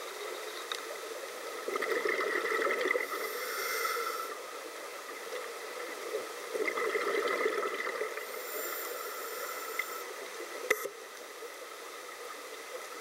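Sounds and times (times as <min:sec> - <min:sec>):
underwater bubbles gurgling: 0:00.9 - 0:10.7
high regulator hiss: 0:03.0 - 0:04.6, 0:08.2 - 0:10.3
sharp click: 0:10.7 - 0:11.0.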